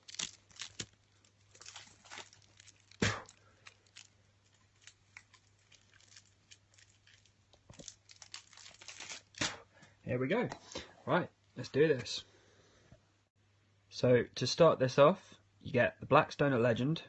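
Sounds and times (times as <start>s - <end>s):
plastic shrink-wrap crinkling: 0.0s - 9.6s.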